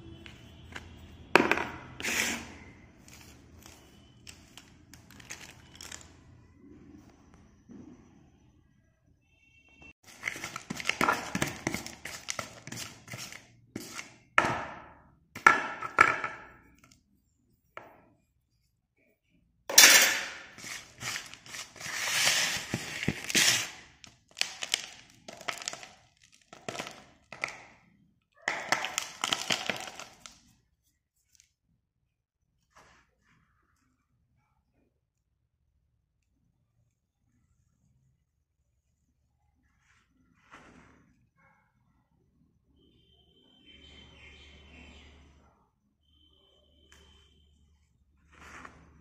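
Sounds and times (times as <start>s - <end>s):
pencil pieces clattering in a tub: 10.1s - 14.0s, 19.7s - 27.7s, 28.5s - 30.4s.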